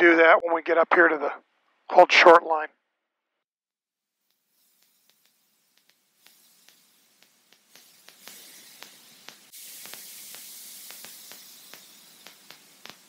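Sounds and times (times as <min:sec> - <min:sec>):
static-like hiss: 0:04.2 - 0:13.0
faint clicks: 0:04.3 - 0:13.0.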